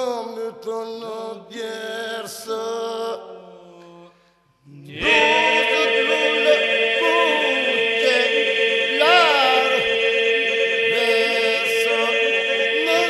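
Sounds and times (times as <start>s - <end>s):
polyphonic group singing a cappella: 4.7s - 13.0s.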